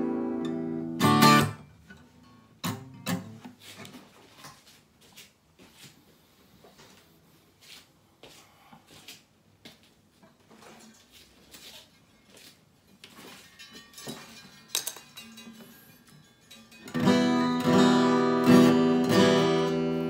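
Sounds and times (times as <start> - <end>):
acoustic guitar strings ringing: 0.0 - 3.4, 13.2 - 20.0
guitar handling knocks and rustling: 1.0 - 4.9, 10.2 - 20.0.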